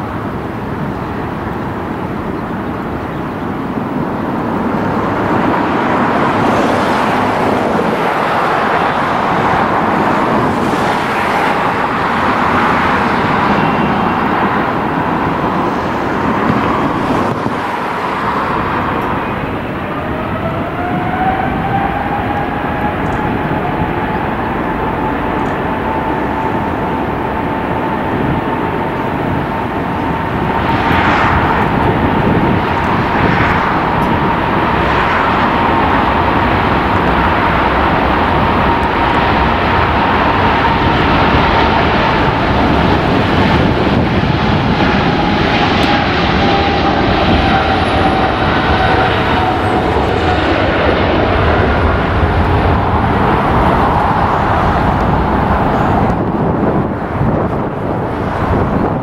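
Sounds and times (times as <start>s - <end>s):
jet engines roaring: 0.0s - 59.0s
turbine whine rising in pitch: 9.2s - 56.4s.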